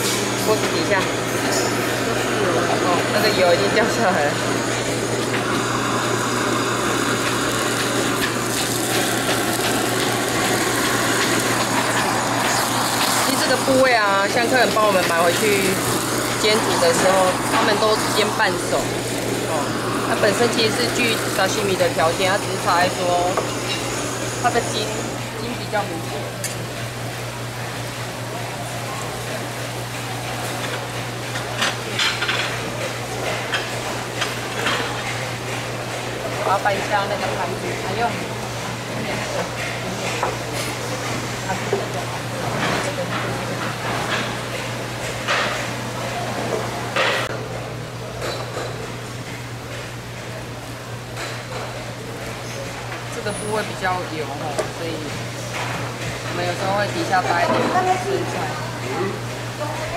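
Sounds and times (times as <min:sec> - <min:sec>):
fish sizzling in oil: 0:00.0 - 0:45.8
blowtorch hissing: 0:00.0 - 0:47.2.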